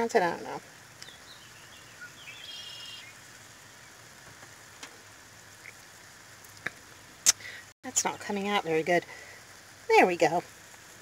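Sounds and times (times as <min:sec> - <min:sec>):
stew sizzling in skillet: 0:00.6 - 0:11.0.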